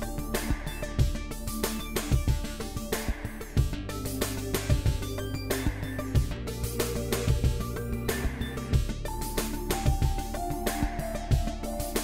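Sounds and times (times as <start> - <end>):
background music with a beat: 0.0 - 12.0.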